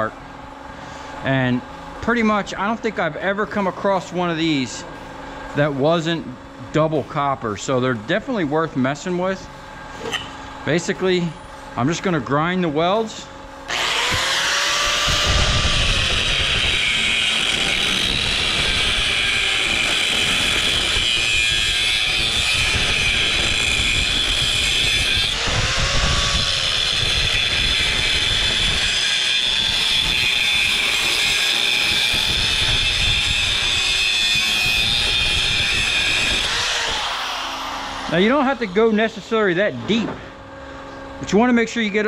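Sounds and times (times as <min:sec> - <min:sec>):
angle grinder grinding steel: 0:13.7 - 0:40.0.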